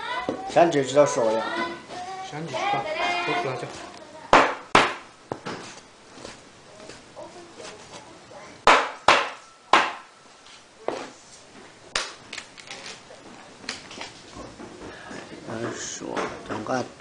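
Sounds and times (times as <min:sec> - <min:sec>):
knife chopping on wooden block: 0:04.3 - 0:05.6, 0:08.7 - 0:10.0.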